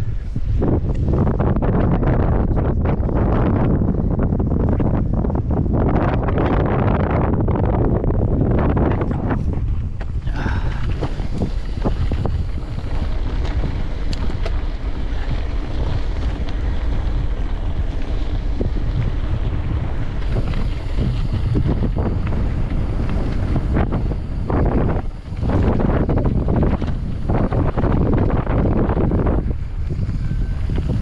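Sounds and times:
wind buffeting microphone: 0.0 - 31.0
bike clicks and knocks: 8.9 - 31.0.

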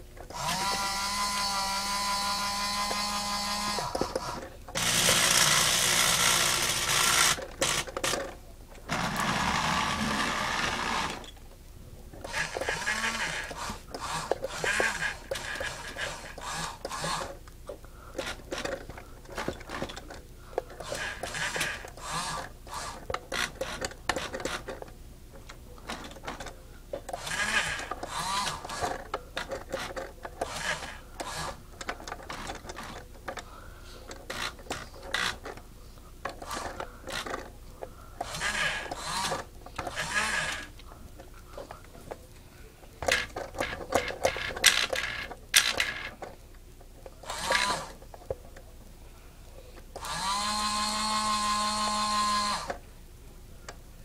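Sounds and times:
small electric motors whirring: 0.3 - 8.3, 8.9 - 11.3, 12.2 - 17.4, 20.8 - 24.7, 27.1 - 33.0, 34.2 - 35.6, 36.3 - 37.5, 38.2 - 40.8, 43.0 - 46.3, 47.2 - 48.0, 50.0 - 52.8.

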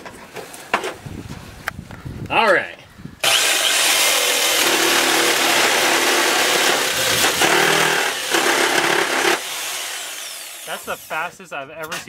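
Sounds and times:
reciprocating saw cutting metal pipe: 3.2 - 11.2.

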